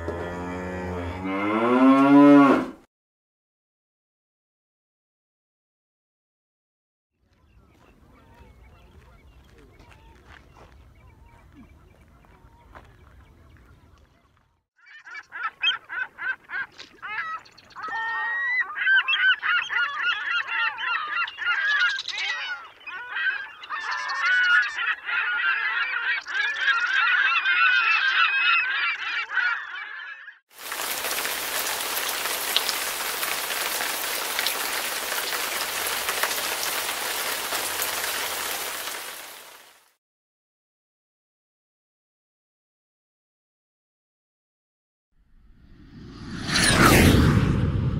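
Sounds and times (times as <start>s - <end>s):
geese honking: 14.9s - 30.4s.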